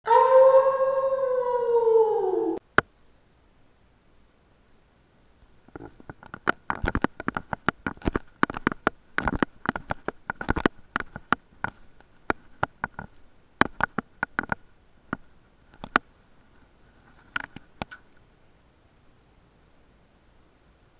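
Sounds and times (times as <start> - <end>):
faint high hum: 0.0 - 5.6.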